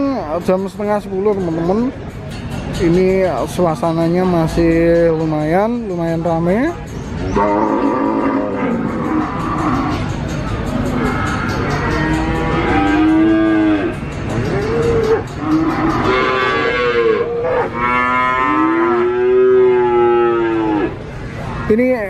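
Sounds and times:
cattle mooing: 0:07.4 - 0:10.1, 0:11.0 - 0:21.0.

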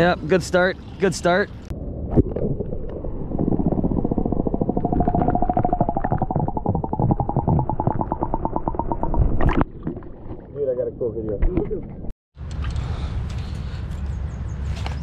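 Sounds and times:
steady underwater hum: 0:01.7 - 0:10.5
rapid underwater pulsing: 0:01.7 - 0:10.6.

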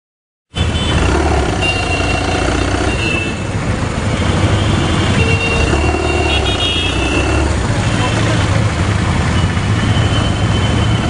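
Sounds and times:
vehicle engines running: 0:00.6 - 0:11.0.

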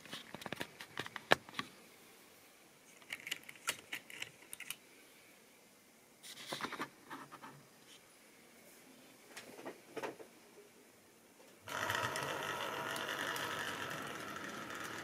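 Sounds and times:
model train clicking on track: 0:11.7 - 0:15.0.

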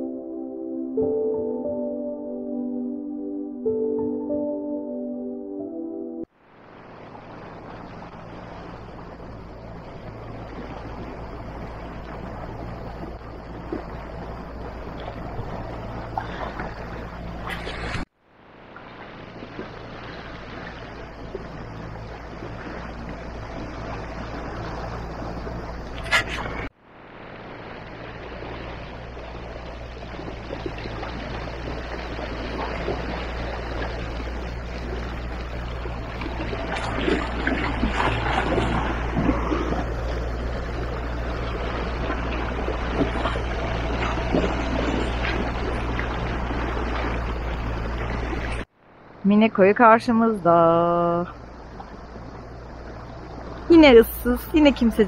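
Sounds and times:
boat engine hum: 0:00.0 - 0:55.0
water and wind wash: 0:06.2 - 0:55.0.

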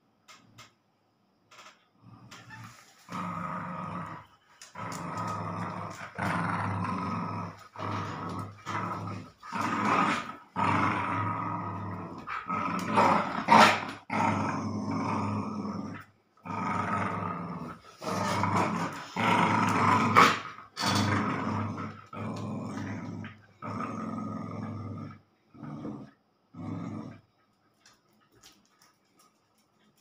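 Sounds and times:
dog growling in play: 0:02.0 - 0:28.5.

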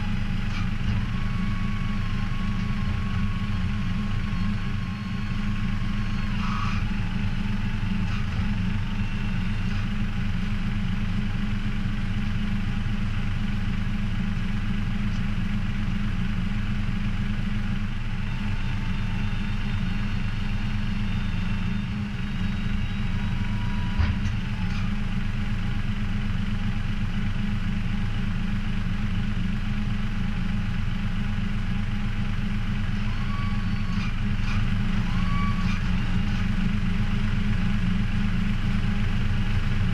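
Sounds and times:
heavy engine idling: 0:00.0 - 0:39.9.

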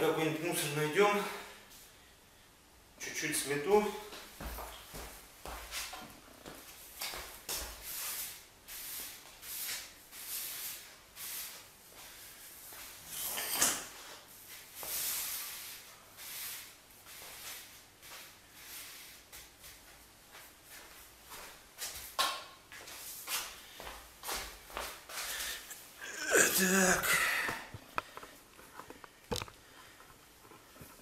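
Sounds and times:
broom sweeping floor: 0:04.2 - 0:26.0.

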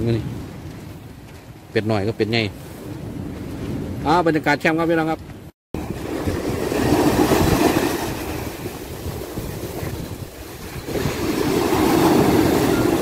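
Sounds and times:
waves breaking on sandy shore: 0:05.8 - 0:13.0.

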